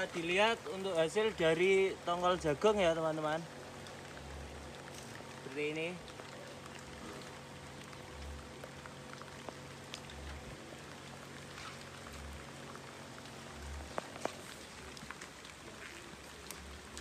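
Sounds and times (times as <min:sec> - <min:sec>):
faint steady hum: 0:00.0 - 0:17.0
small ticks: 0:06.0 - 0:17.0.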